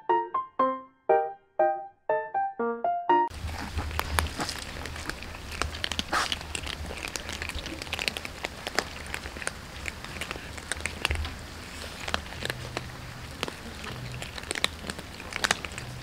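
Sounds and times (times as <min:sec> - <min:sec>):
cats crunching dry kibble: 0:03.3 - 0:16.0.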